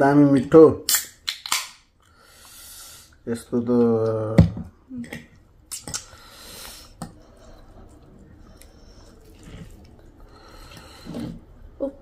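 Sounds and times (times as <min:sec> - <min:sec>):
lip smacks and cutlery clicks: 0:00.9 - 0:01.8, 0:05.1 - 0:06.2
wet chewing and slurping: 0:05.8 - 0:11.7.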